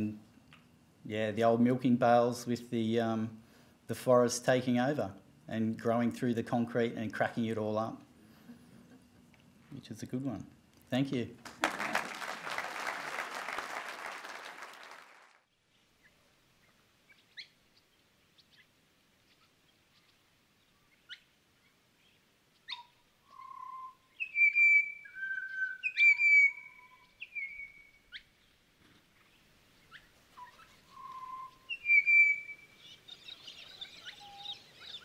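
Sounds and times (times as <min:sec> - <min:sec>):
birds singing and chirping: 0:22.0 - 0:28.6, 0:29.2 - 0:35.0.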